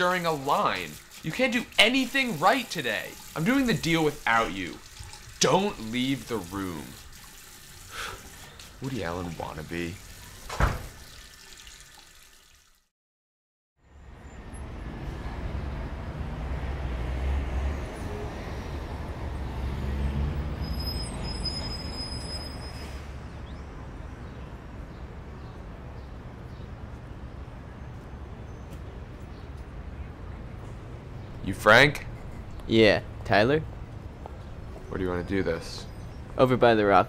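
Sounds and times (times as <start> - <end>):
running tap water: 0.0 - 12.9
street traffic rumble: 13.8 - 37.0.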